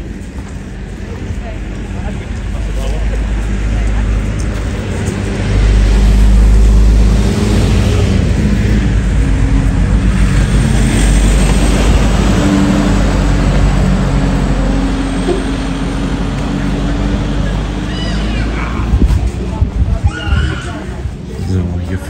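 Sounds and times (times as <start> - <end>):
wind rumble on microphone: 18.5 - 22.0.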